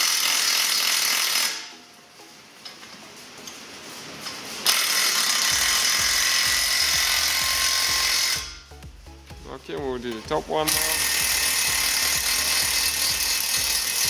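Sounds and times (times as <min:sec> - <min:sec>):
cordless impact driver hammering: 0:10.7 - 0:14.0.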